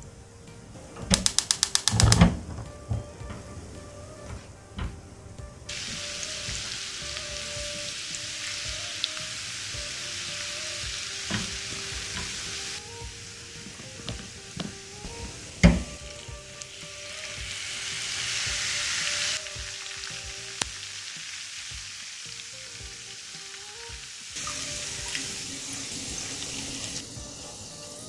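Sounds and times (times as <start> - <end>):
quiet background music: 0.0 - 28.0
garlic sizzling in hot oil: 5.6 - 28.0.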